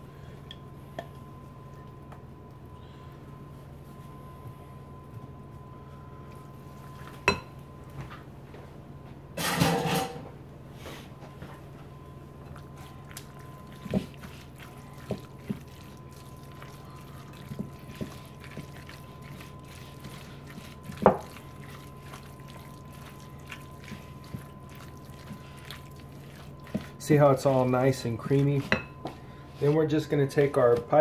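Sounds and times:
low hum: 0:00.0 - 0:09.2
soft wet squelching: 0:12.4 - 0:30.9.

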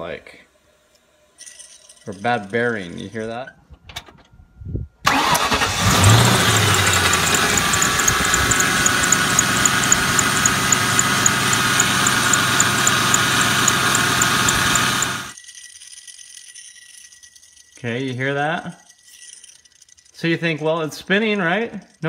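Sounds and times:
car engine running: 0:05.1 - 0:15.4
pulley bearing whir: 0:05.1 - 0:17.8
quick high ticking: 0:06.4 - 0:15.4.

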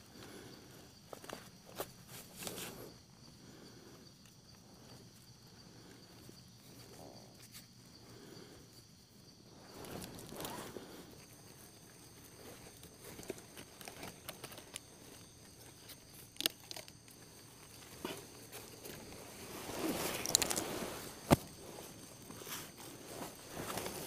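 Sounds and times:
twigs snapping: 0:12.8 - 0:19.1, 0:19.9 - 0:22.4.

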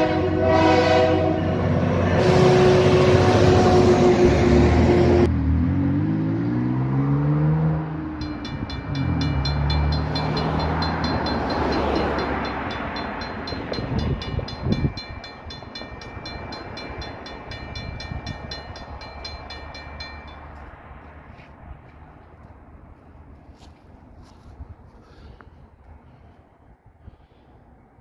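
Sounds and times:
vehicle passing: 0:00.0 - 0:14.9
railroad crossing bell ringing: 0:08.1 - 0:21.4.

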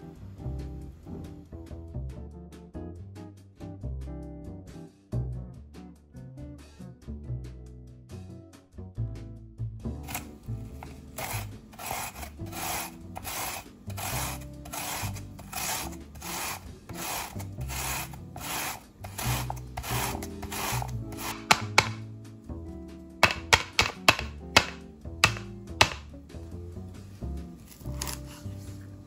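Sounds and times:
radish grated on plastic grater: 0:10.0 - 0:22.0, 0:23.2 - 0:26.1
sharp taps: 0:21.2 - 0:22.0, 0:23.2 - 0:26.1.

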